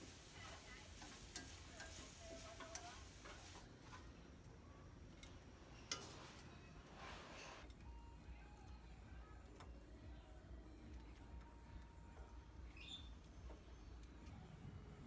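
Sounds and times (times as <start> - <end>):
shrimp frying in a wok: 0.0 - 4.0
chopsticks clicking against pan: 1.0 - 3.5.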